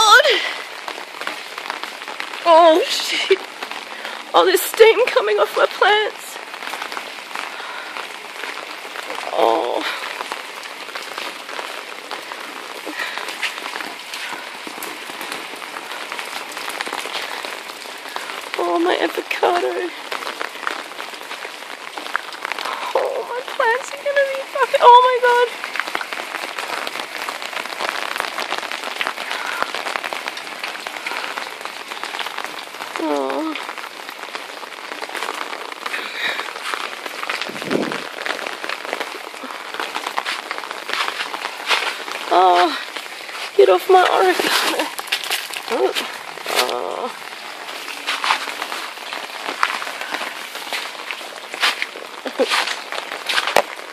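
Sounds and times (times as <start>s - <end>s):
sharp drips: 0.0s - 53.9s
water drops on hard surfaces: 43.9s - 46.8s.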